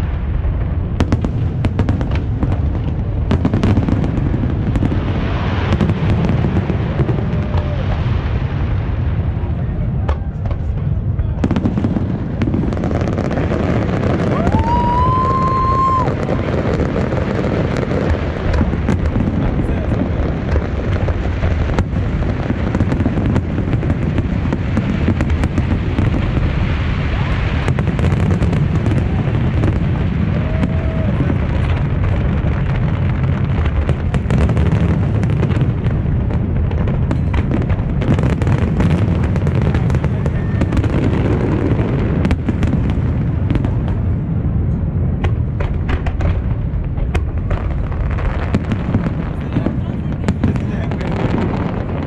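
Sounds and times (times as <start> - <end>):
fireworks booms and pops: 0.0 - 52.0.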